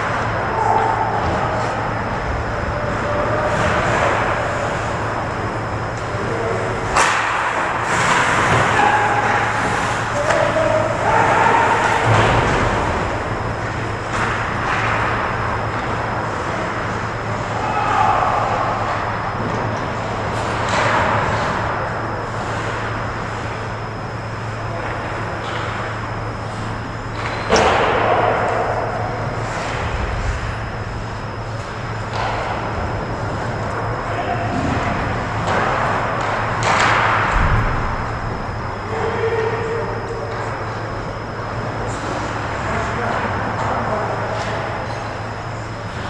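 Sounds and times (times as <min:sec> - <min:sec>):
low rink hum: 0:00.0 - 0:46.0
distant players shouting: 0:00.1 - 0:15.7, 0:16.7 - 0:19.5, 0:38.7 - 0:40.4
cracks of pucks and sticks: 0:06.9 - 0:09.5, 0:14.1 - 0:15.0, 0:27.2 - 0:28.7, 0:32.1 - 0:32.6, 0:35.4 - 0:37.3.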